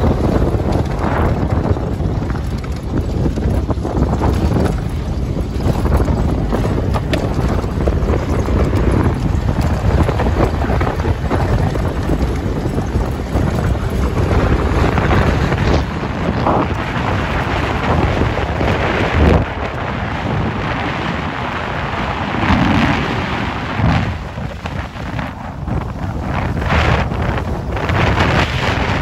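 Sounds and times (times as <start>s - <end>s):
vehicle rumbling on gravel road: 0.0s - 29.0s
wind buffeting microphone: 0.0s - 29.0s.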